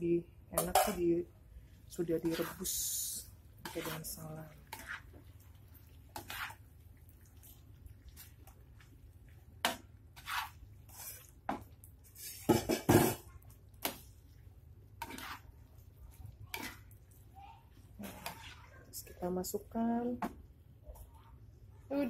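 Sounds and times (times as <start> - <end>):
metal spatula scraping wok: 2.0 - 5.2, 6.1 - 6.6, 9.7 - 11.3, 12.1 - 13.2, 15.0 - 15.6, 16.5 - 16.9, 18.0 - 18.8.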